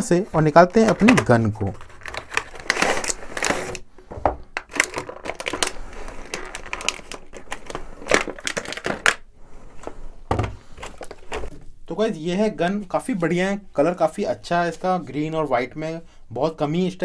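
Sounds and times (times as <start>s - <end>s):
plastic tray scraping and rustling: 0.4s - 3.8s
cardboard box being opened: 1.8s - 3.8s, 4.7s - 9.1s.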